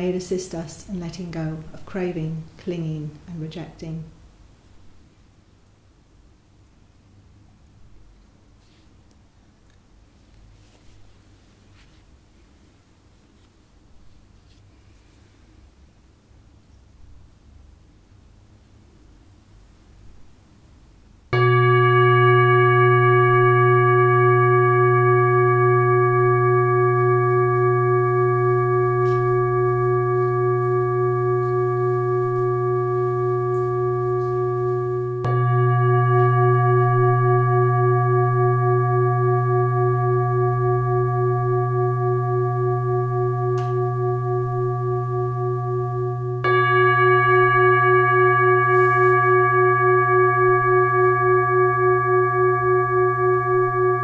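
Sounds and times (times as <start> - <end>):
singing bowl ringing: 21.4 - 54.0.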